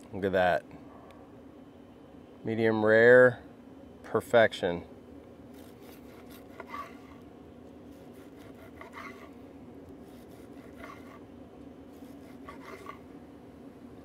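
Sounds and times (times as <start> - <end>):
knife slicing meat on wooden board: 5.6 - 7.1, 7.9 - 9.3, 10.0 - 11.2, 12.0 - 13.0.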